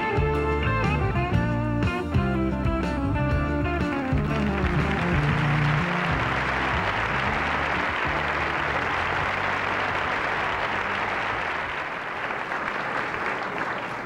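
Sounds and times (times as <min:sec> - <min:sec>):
music: 0:00.0 - 0:12.5
large audience applauding: 0:03.8 - 0:14.0.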